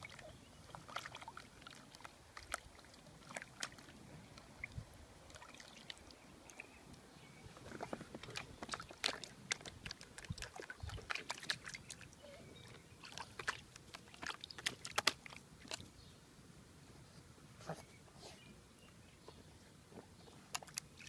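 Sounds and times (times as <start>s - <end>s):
puppy splashing water: 0.0s - 6.7s, 7.7s - 15.9s, 20.5s - 21.0s.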